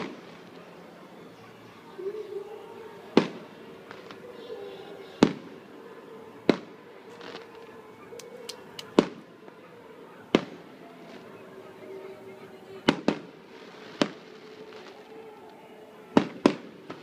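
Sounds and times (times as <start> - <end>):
fireworks bangs: 0.0 - 0.6, 3.1 - 4.2, 5.2 - 5.6, 6.4 - 7.7, 8.4 - 9.6, 10.3 - 11.3, 12.8 - 17.0
fireworks crackles: 0.0 - 0.9, 3.2 - 4.2, 6.5 - 9.3, 12.8 - 17.0.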